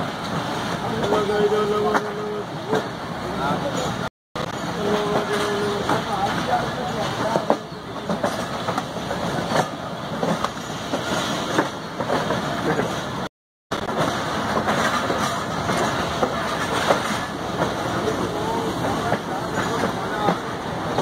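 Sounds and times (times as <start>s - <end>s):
train wheels rolling: 0.0s - 21.0s
train wheels clacking over joints: 3.7s - 13.2s, 13.8s - 18.2s, 18.8s - 21.0s.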